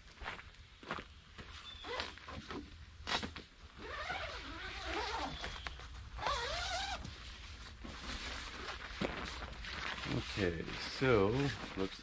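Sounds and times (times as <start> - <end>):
tent zipper unzipping: 3.1 - 7.1, 7.8 - 11.8.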